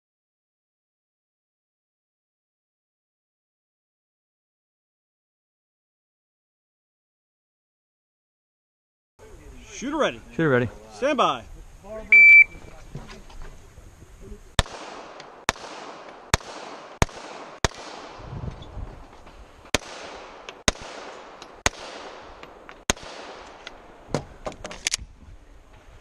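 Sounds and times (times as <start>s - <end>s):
pistol gunshots: 14.6s - 18.4s, 19.7s - 24.1s
quieter cracks: 14.6s - 25.1s.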